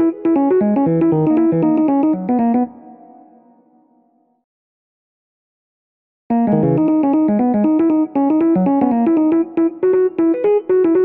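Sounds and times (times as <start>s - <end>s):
bouncy keyboard melody: 0.0s - 3.4s, 6.3s - 11.0s.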